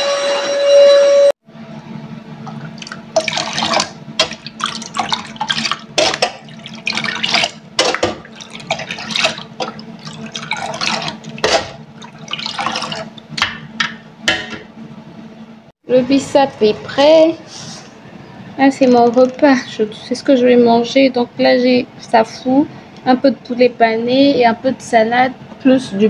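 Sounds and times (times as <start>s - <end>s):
water splashing and pouring: 2.5s - 13.4s.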